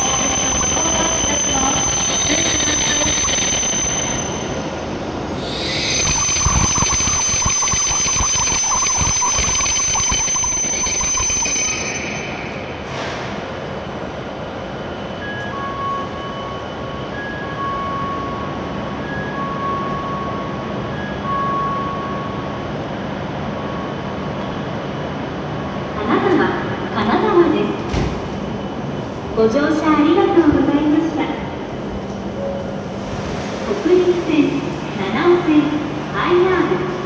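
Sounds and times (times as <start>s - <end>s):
train brakes high-pitched whine: 0.0s - 18.4s
rumble of train wheels: 0.0s - 37.0s
two-note electronic chime: 5.5s - 12.9s.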